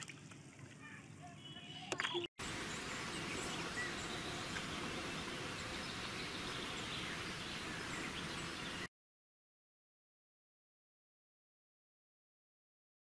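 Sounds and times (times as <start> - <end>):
steady hissing noise: 2.4 - 8.9.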